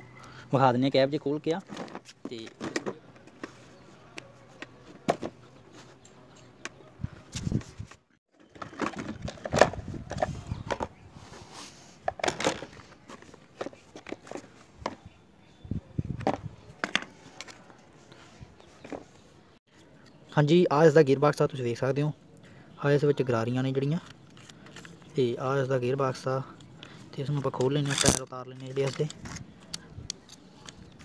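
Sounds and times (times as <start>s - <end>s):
plastic parts clacking together: 1.6s - 3.6s, 8.3s - 10.9s, 12.0s - 15.0s, 16.2s - 17.7s, 24.0s - 25.2s, 27.4s - 31.0s.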